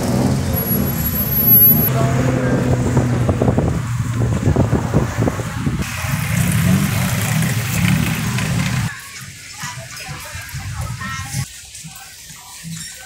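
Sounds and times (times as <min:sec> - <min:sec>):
vehicle engines humming: 0:00.0 - 0:09.0.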